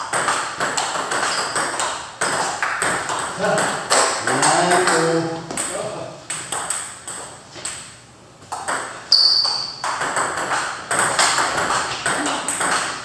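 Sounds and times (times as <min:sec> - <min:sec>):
table tennis balls clicking: 0:00.0 - 0:13.0
high squeak: 0:01.3 - 0:01.7, 0:09.1 - 0:09.8.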